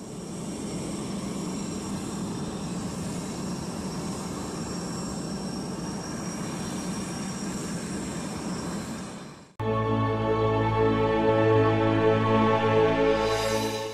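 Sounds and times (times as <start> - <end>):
jet engines rumbling with high whine: 0.0 - 10.0.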